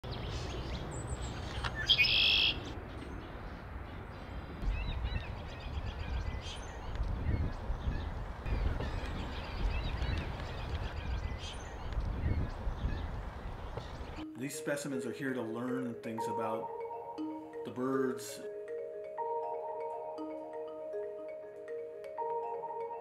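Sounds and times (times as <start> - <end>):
birds chipping and squeaking: 0.0 - 14.2.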